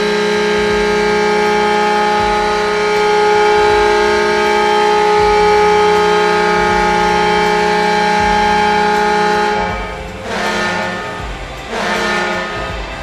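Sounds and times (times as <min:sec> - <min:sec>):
goal horn chord: 0:00.0 - 0:13.0.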